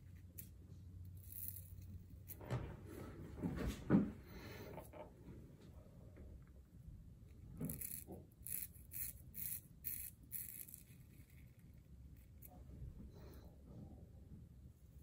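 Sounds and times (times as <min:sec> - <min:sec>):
razor scraping beard stubble: 0:07.6 - 0:12.5.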